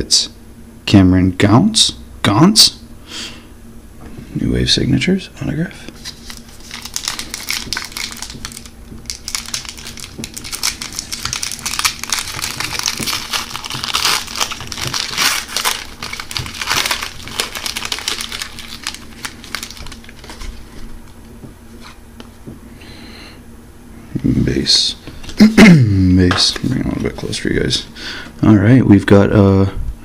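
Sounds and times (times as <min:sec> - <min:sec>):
foil wrapper crinkling and tearing: 0:06.0 - 0:20.9.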